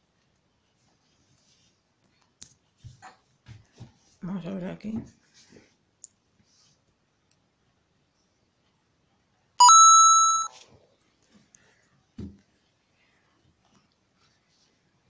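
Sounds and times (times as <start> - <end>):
phone notification chime: 9.6 - 10.5.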